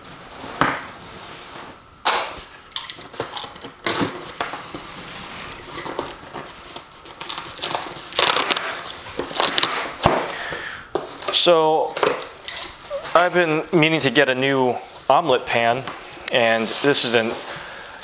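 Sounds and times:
packing tape scratching and cutting: 0:02.1 - 0:10.2
tape and cardboard tearing: 0:05.5 - 0:10.3.

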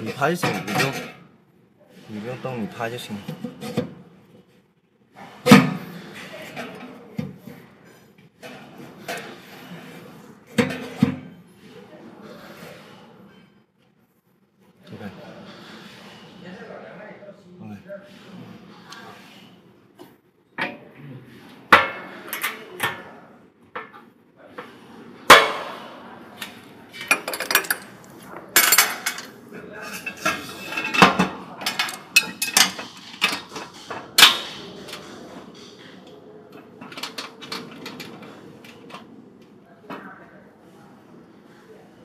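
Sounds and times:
metal parts clanking: 0:27.0 - 0:29.3.

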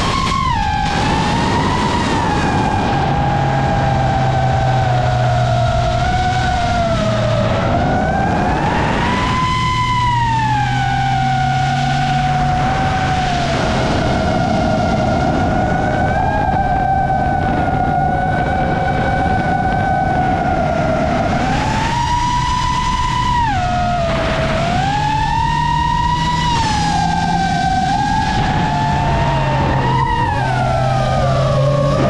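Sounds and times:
drone motors whining: 0:00.0 - 0:32.0.

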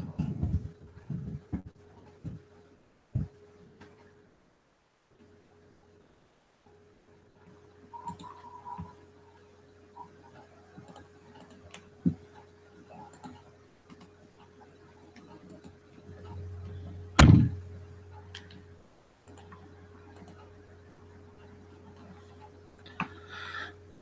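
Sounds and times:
electrical hum: 0:00.0 - 0:24.0
loud thump: 0:17.2 - 0:17.6.

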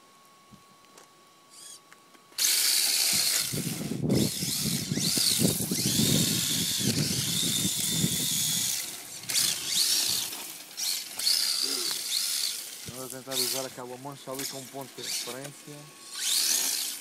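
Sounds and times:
rc car electric motor whining: 0:01.5 - 0:17.0.

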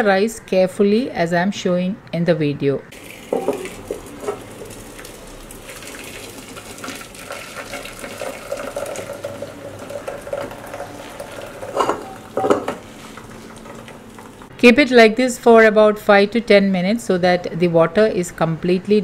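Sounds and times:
water trickling into metal pot: 0:02.9 - 0:14.5.

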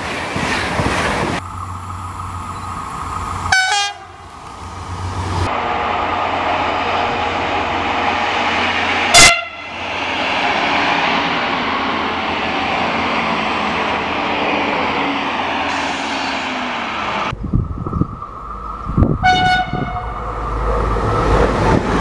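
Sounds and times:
train engine and wheel noise: 0:00.0 - 0:22.0
train horn toot: 0:03.5 - 0:04.2, 0:09.1 - 0:09.7, 0:19.2 - 0:20.2.

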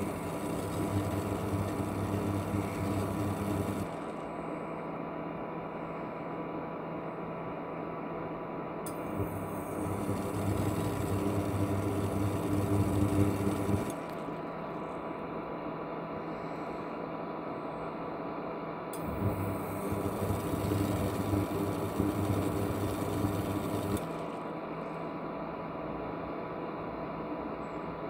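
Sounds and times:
hum and bubbling water: 0:00.0 - 0:04.5, 0:08.9 - 0:14.6, 0:19.0 - 0:24.7
fan hiss with high tone: 0:00.0 - 0:05.2.

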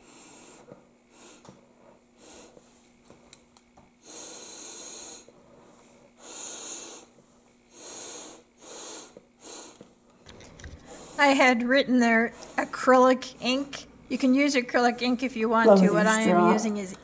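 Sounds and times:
breath blown through a straw: 0:00.0 - 0:01.5, 0:04.0 - 0:05.4, 0:06.2 - 0:09.8.

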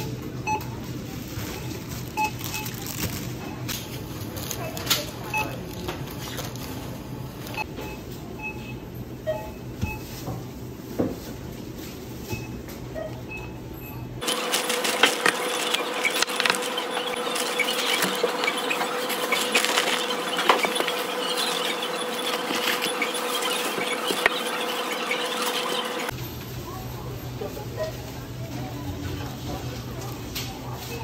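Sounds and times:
plastic packaging rustling: 0:01.1 - 0:05.0, 0:14.2 - 0:24.3.

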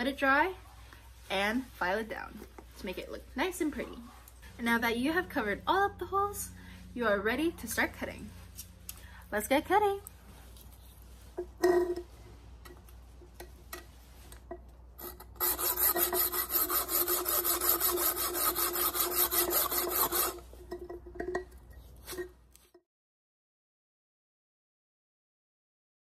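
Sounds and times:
knocks and scrapes handling: 0:10.0 - 0:16.3, 0:19.4 - 0:22.8
hacksaw sawing shell: 0:15.0 - 0:20.5.

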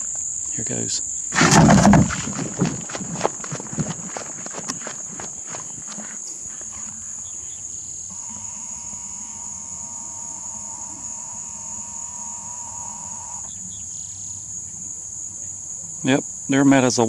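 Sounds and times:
insects droning: 0:00.0 - 0:17.0
running footsteps on grass: 0:01.4 - 0:07.0
thin wavering buzz: 0:07.9 - 0:14.2.

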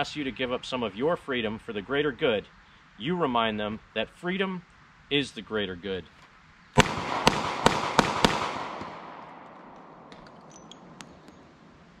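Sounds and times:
revolver shots echoing: 0:06.8 - 0:11.5.

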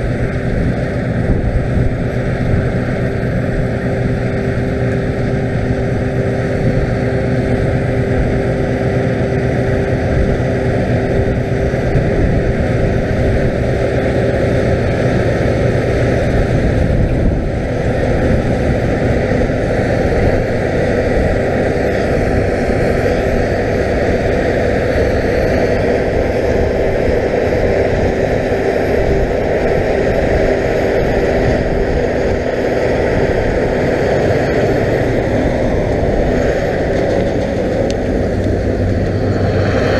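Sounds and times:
combine harvester engine drone: 0:00.0 - 0:39.9.

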